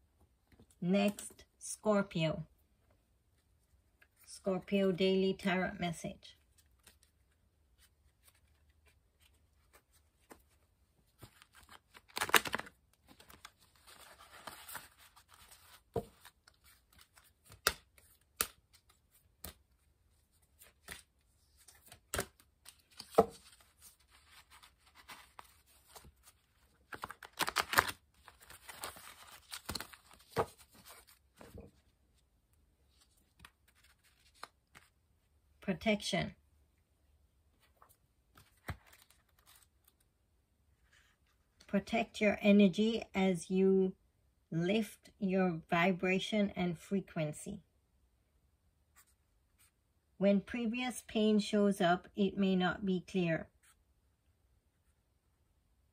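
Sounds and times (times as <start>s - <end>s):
cards shuffling and rustling: 6.5s - 31.9s, 32.9s - 35.0s, 37.6s - 40.1s.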